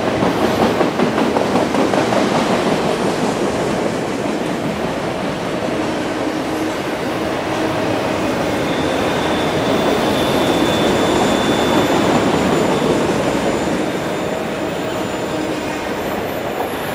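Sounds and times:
steel wheels rattling on rail: 0.0s - 16.9s
faint high wheel squeal: 7.5s - 16.9s.

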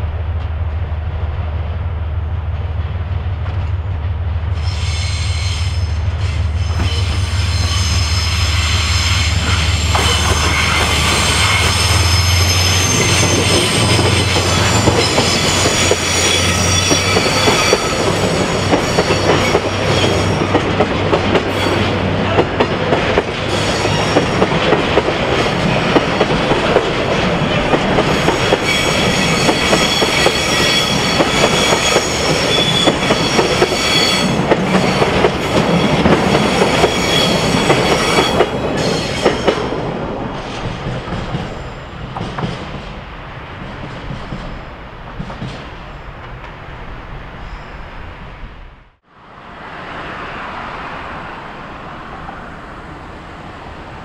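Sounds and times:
train wheels squealing: 4.6s - 20.6s, 23.5s - 24.4s, 28.1s - 39.6s, 47.4s - 48.2s.

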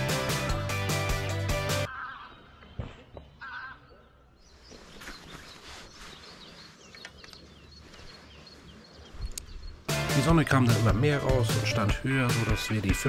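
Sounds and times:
faint outdoor background noise: 1.9s - 10.8s
small birds chirping: 1.9s - 12.9s.

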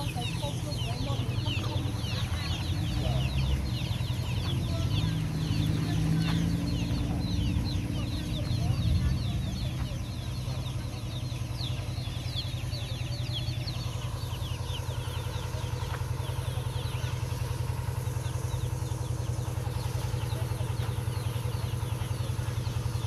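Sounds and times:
chicks peeping: 0.0s - 23.0s.

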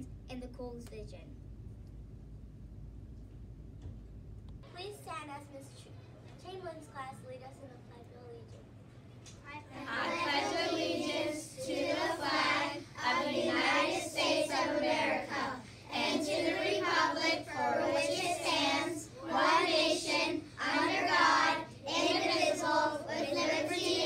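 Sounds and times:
children reciting in unison: 9.7s - 24.0s.

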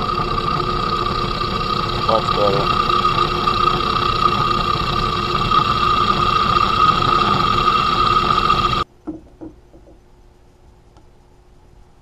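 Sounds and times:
drill press whining: 0.0s - 8.8s.

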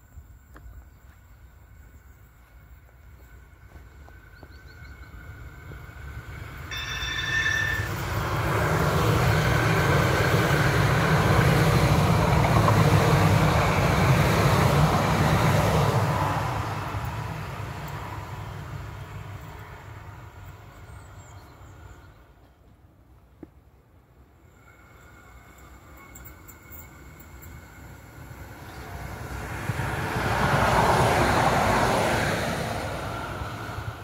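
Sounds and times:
train passing: 0.0s - 34.0s
brief high tone: 6.7s - 8.0s.

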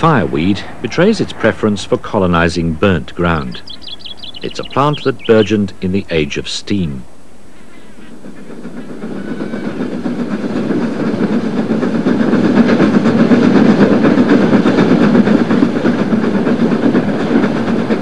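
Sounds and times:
steam train passing: 0.0s - 18.0s
clatter of train wheels: 7.8s - 18.0s.

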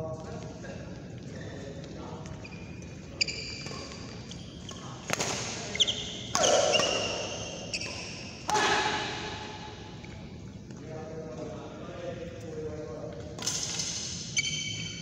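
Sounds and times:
shoes squeaking on court: 0.1s - 8.5s, 13.4s - 15.0s
rackets striking shuttlecock: 2.3s - 10.3s.

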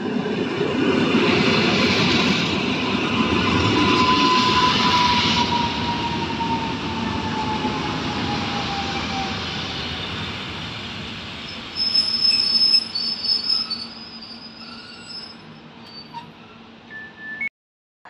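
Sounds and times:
train wheel rumble: 0.0s - 16.8s
high-pitched brake squeals: 11.4s - 17.5s.

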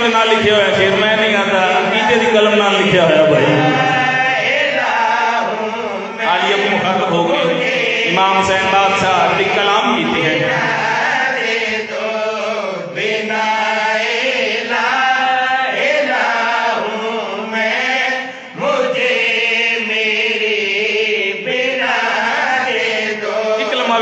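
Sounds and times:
man chanting through a microphone: 0.0s - 24.0s.

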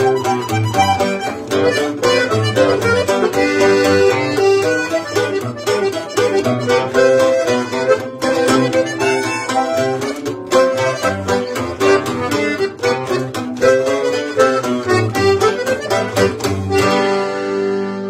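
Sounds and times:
button accordion melody: 0.0s - 18.0s
strummed twelve-string guitar: 0.0s - 18.0s.

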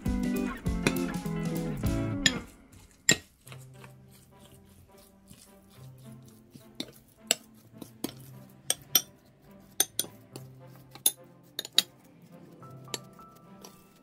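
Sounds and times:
soft background music: 0.0s - 14.0s
metal spoon clinking glass bowl: 8.1s - 9.1s, 9.8s - 10.2s, 11.0s - 12.0s.

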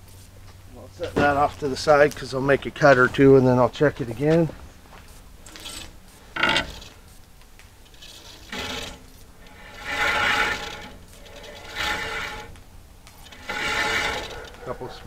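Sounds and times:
saw blade rubbing on wheels: 5.4s - 7.2s, 7.8s - 15.0s.

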